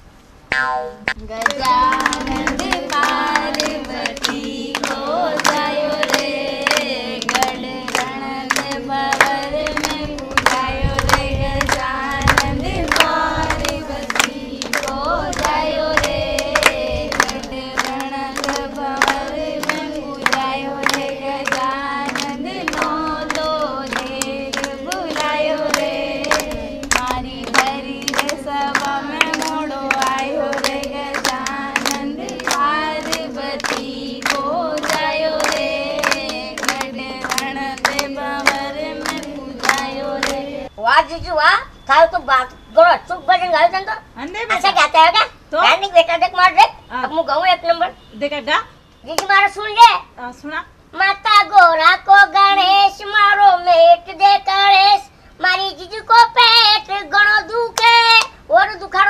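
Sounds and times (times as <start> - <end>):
hands clapping in rhythm: 0.5 - 40.6, 49.2 - 49.4, 57.8 - 58.4
women singing together: 0.7 - 40.8, 51.0 - 59.0.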